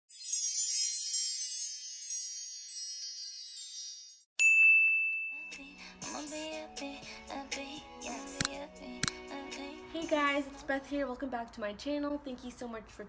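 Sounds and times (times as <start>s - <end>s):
shimmering high chimes: 0.1s - 4.6s
bright ding ringing: 4.4s - 5.6s.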